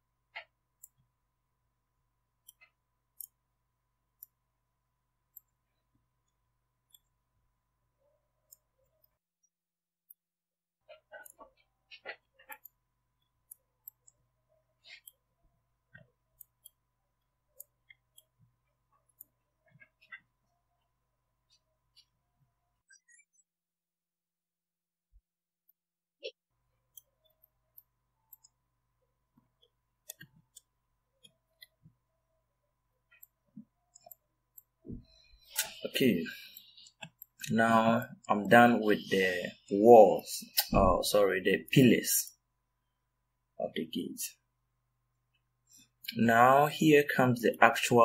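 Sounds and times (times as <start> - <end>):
keyboard and mouse clicks: 2.4 - 3.4, 10.8 - 14.2, 26.2 - 28.6, 29.4 - 32.0, 33.1 - 38.2
mouse and keyboard clicks: 10.9 - 12.8, 29.6 - 31.8.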